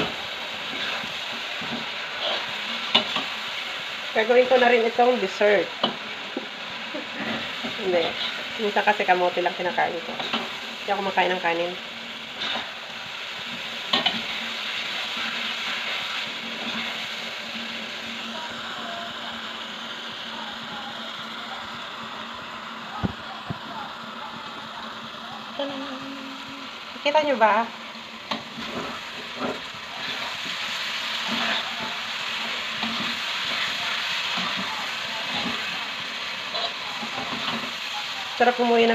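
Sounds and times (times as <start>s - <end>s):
food sizzling in a wok: 0.0s - 38.9s.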